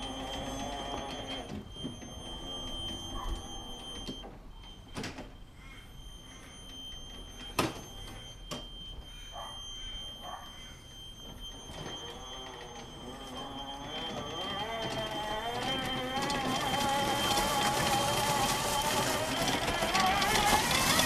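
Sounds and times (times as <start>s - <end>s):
toy cart motor whine: 11.8s - 21.0s
sharp knocks of rolling cart: 14.0s - 21.0s.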